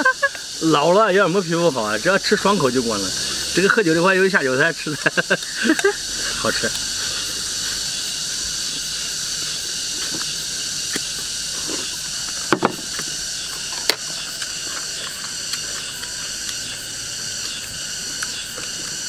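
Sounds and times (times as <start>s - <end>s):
high insect hiss: 0.0s - 19.0s
chopsticks clicking against bowls: 4.9s - 7.0s
loud knocks: 12.5s - 12.9s.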